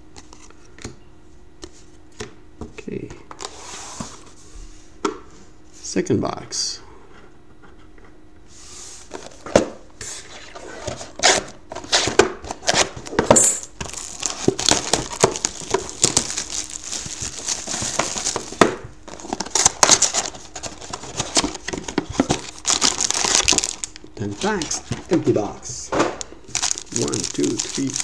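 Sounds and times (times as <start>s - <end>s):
plastic shrink wrap tearing: 13.8s - 21.6s, 22.2s - 24.8s, 26.2s - 28.0s.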